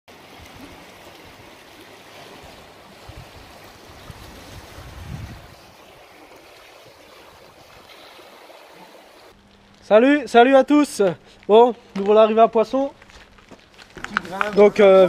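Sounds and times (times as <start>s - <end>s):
shallow river flowing: 0.1s - 9.4s.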